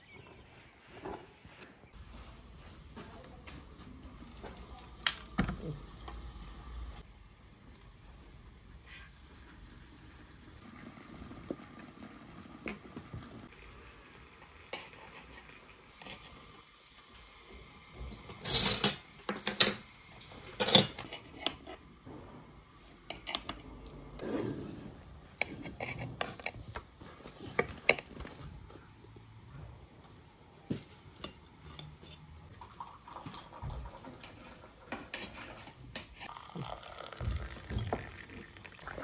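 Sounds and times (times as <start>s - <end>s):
tableware clinking and clattering: 11.6s - 13.4s, 18.2s - 21.8s, 30.8s - 32.5s.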